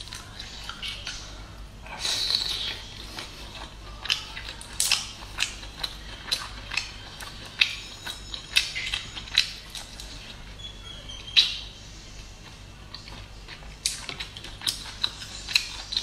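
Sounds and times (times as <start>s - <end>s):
wet chewing and biting: 0.0s - 10.5s, 12.2s - 16.0s.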